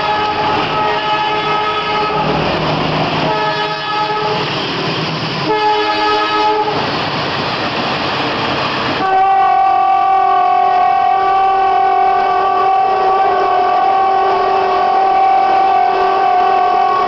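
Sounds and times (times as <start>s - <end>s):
multi-tone train horn blasts: 0.0s - 2.4s, 3.2s - 4.6s, 5.4s - 6.8s, 9.0s - 17.0s
rushing train noise: 0.0s - 17.0s.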